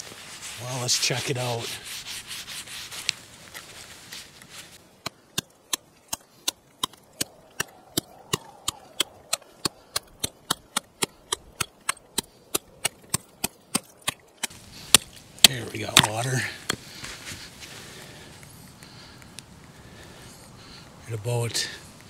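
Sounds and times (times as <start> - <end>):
ice chopping: 5.0 - 17.0.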